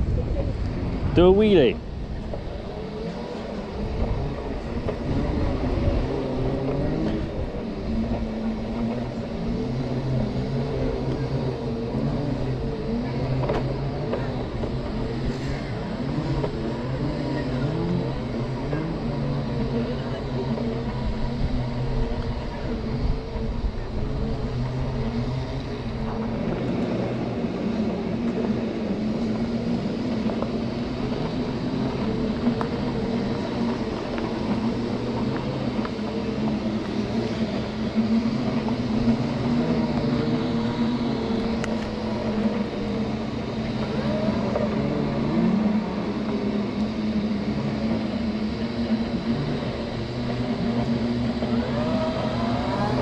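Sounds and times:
electric scooter drive whining: 0.0 - 53.0
wind rumble on microphone: 0.0 - 53.0.

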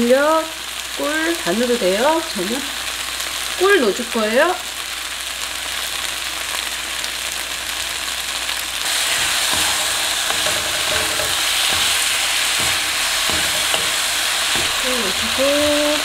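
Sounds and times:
food sizzling in a wok: 0.0 - 16.0
spatula knocking and scraping pan: 8.9 - 16.0.

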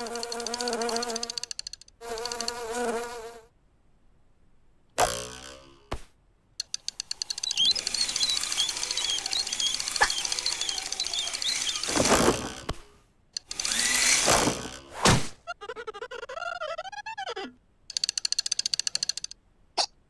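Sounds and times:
cartoon fly buzzing: 0.0 - 3.5, 7.4 - 12.7
wavering squeak: 7.0 - 12.7.

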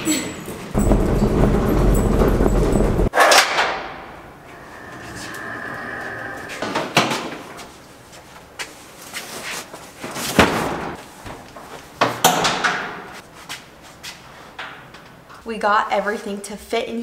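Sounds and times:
knocks and thuds in metal unit: 0.8 - 4.0.

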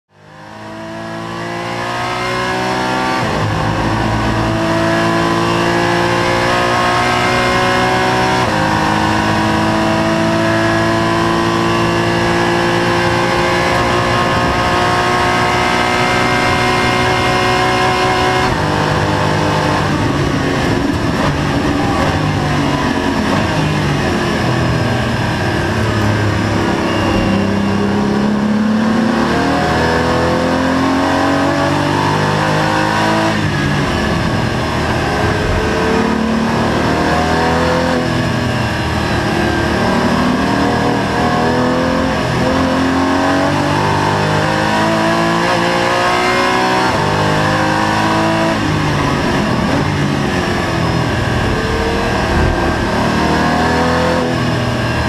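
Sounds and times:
race car engine revving: 0.1 - 55.0.

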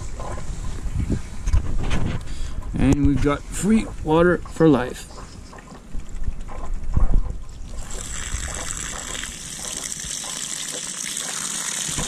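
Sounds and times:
water gushing onto dry leaves: 7.6 - 12.0.

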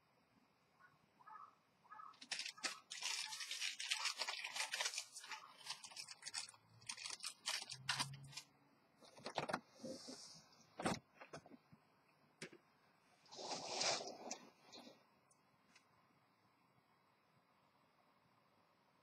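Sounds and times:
rustling and crackling clicks: 2.2 - 9.6.

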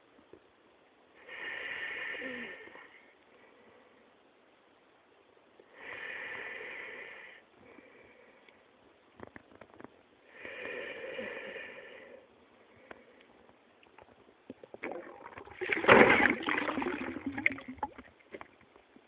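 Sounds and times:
underwater swishing and gurgling: 14.6 - 18.5.

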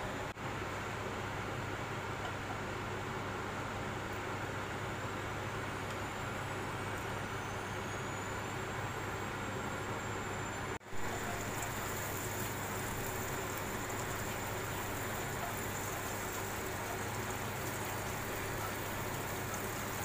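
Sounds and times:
butter sizzling in a wok: 10.9 - 20.0.

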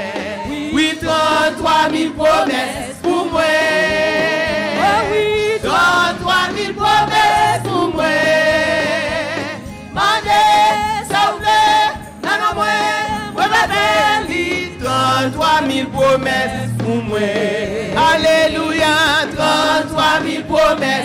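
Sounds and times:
instrumental accompaniment: 0.0 - 21.0
voices singing a praise chorus: 0.0 - 21.0.

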